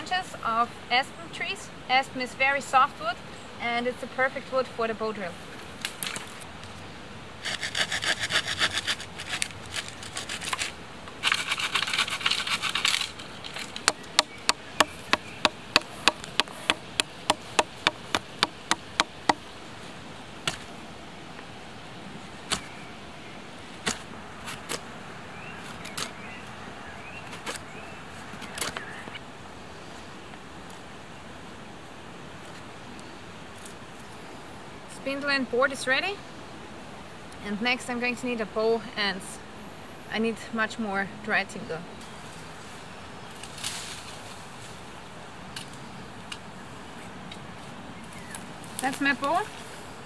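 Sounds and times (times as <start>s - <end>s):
hand saw cutting branch: 7.4s - 19.4s
blade chopping wood: 13.8s - 19.4s
wood knocking: 13.8s - 19.4s.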